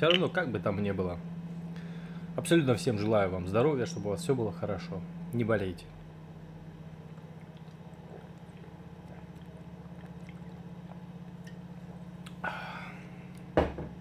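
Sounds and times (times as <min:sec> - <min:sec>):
steady low hum: 0:00.0 - 0:14.0
swallowing and liquid sounds: 0:06.9 - 0:12.4
person gulping soda: 0:07.0 - 0:13.5.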